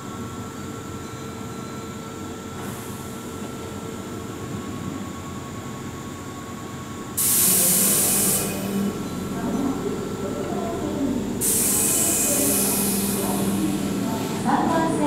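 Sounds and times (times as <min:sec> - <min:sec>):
electric train rumbling: 0:02.5 - 0:15.0
air hiss: 0:07.2 - 0:08.8, 0:11.4 - 0:13.8.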